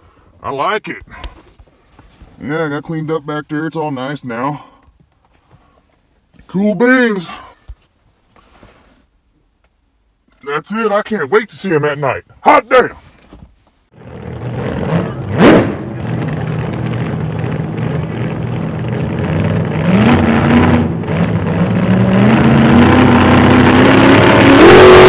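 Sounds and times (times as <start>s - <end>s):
vehicle engine accelerating: 14.0s - 25.0s.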